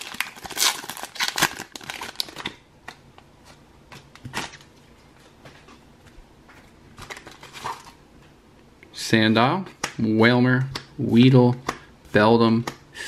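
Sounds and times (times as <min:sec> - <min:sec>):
foil wrapper crinkling and tearing: 0:00.0 - 0:02.6.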